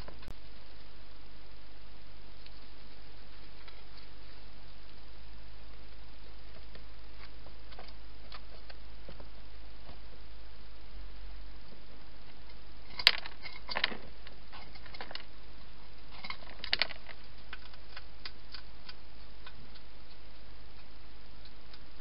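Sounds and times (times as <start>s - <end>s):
steady hiss: 0.0s - 22.0s
hedgehog eating with clicks and crunches: 12.3s - 22.0s.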